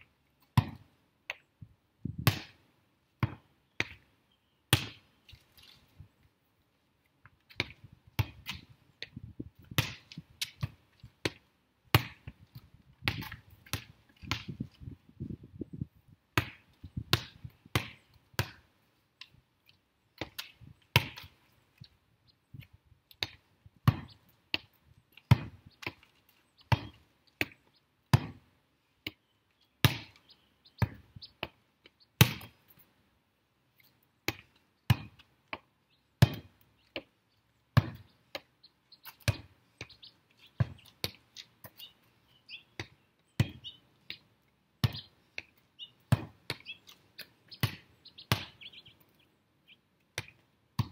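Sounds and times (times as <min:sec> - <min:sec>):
volleyball being struck: 0:47.6 - 0:48.6.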